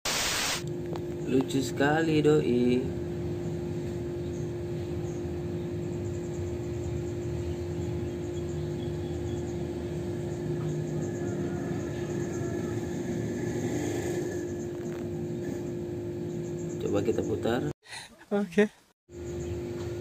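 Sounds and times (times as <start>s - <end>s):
steady mid-low hum: 0.7s - 17.8s.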